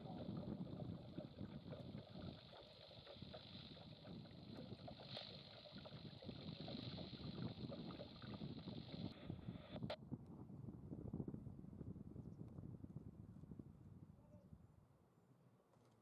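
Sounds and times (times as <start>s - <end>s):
steady high hiss: 0.0s - 9.9s
water noise: 0.0s - 9.9s.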